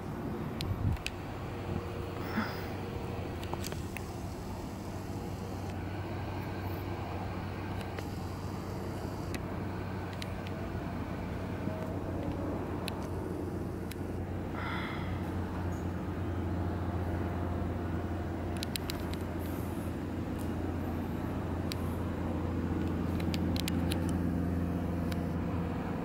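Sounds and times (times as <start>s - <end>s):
low hum and rumble: 0.0s - 26.0s.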